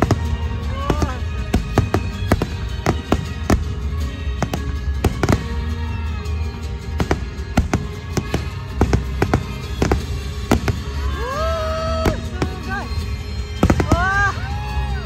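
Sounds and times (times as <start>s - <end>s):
fireworks bursting: 0.0s - 14.4s
loud music: 0.0s - 15.0s.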